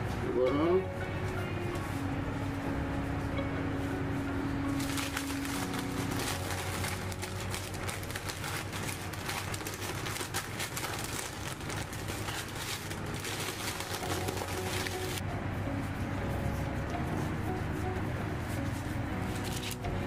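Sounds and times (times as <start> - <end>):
paper rustling and crinkling: 4.7 - 15.2, 18.6 - 19.9.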